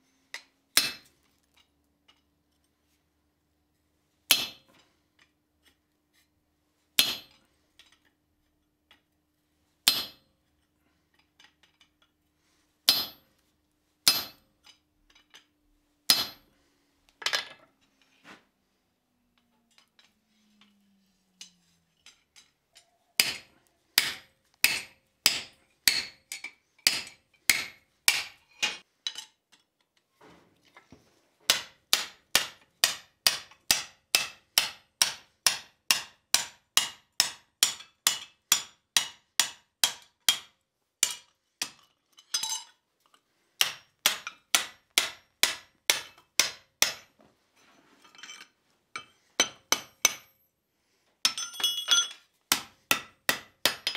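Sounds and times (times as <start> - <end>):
hammer striking metal punch: 14.1 - 14.4, 16.1 - 16.5.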